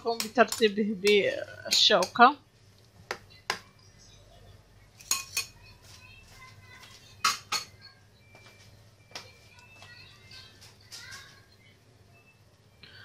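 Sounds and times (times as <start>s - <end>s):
fork clinking on plate: 5.0s - 5.6s.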